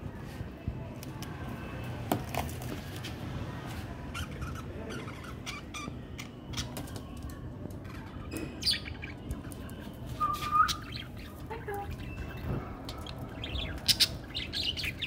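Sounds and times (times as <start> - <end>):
parakeets chirping: 4.1 - 7.0, 7.8 - 15.0.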